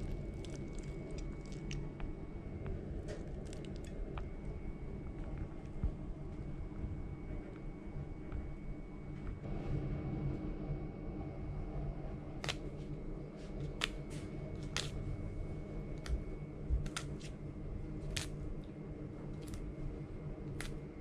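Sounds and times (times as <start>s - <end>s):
basil leaves snapping: 0.0s - 2.0s, 3.1s - 4.3s, 12.4s - 12.7s, 13.6s - 14.0s, 14.6s - 15.0s, 16.8s - 17.4s, 18.0s - 18.7s, 19.4s - 19.7s, 20.5s - 20.8s
low room hum: 0.0s - 21.0s.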